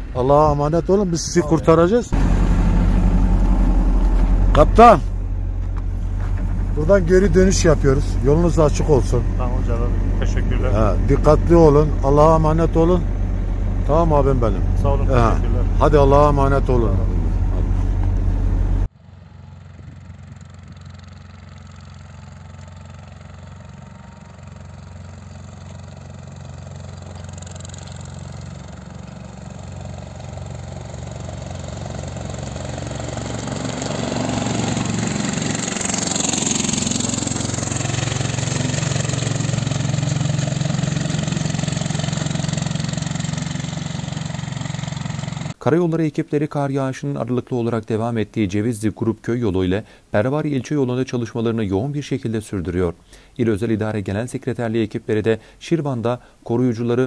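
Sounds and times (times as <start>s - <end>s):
diesel truck passing: 0.0s - 45.6s
engine rumble inside vehicle: 0.0s - 45.6s.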